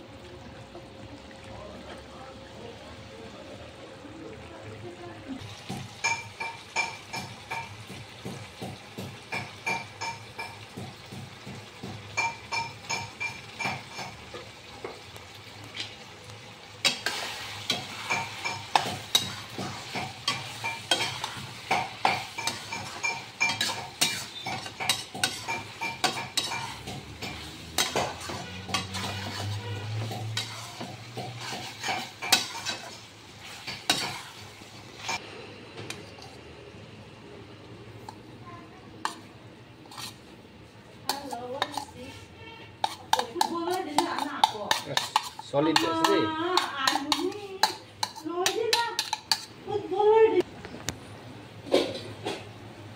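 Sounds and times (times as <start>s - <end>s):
meat sizzling in wok: 4.9s - 36.7s, 39.0s - 50.3s
spatula scraping and knocking pan: 5.5s - 15.1s, 16.8s - 35.2s, 39.0s - 40.3s, 41.1s - 49.6s.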